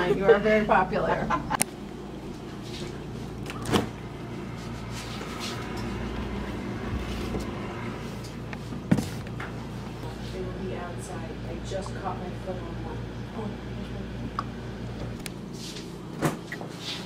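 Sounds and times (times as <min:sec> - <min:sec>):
steady low hum: 0:00.0 - 0:17.0
refrigerator door opening: 0:03.4 - 0:04.0.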